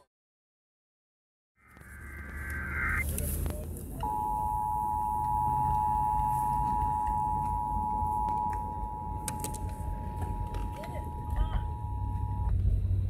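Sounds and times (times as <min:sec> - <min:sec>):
two-tone alarm from car radio: 0:04.0 - 0:12.5.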